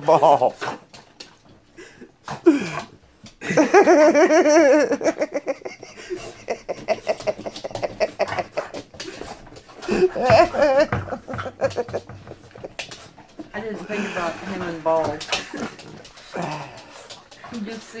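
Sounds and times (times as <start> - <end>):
person laughing: 3.4 - 8.8, 9.9 - 12.8
dog claws tapping on wooden floor: 5.2 - 18.0.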